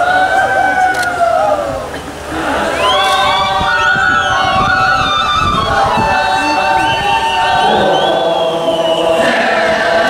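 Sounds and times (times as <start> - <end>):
group of voices chanting: 1.6 - 10.0.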